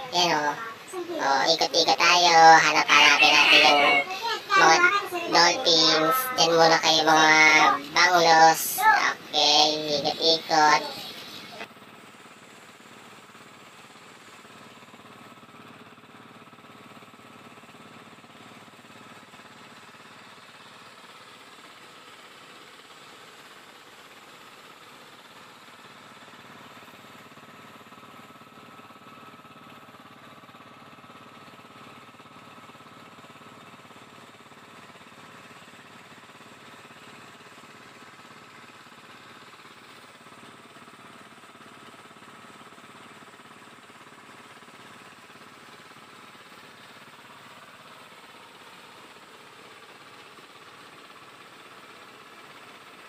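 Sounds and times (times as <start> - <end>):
boat engine running: 0.0 - 23.4.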